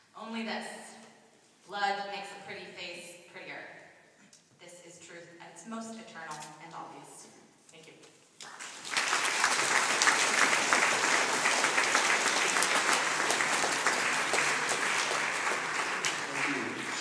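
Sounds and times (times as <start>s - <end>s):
audience applauding: 8.5s - 17.0s.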